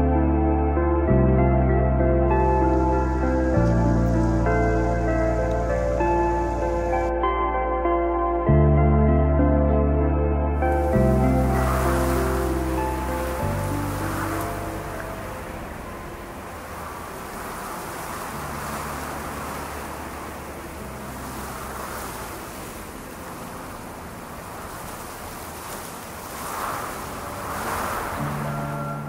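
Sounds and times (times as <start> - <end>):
soft ambient music: 0.0 - 29.0
rain hissing on wet street: 2.3 - 7.1, 10.6 - 29.0.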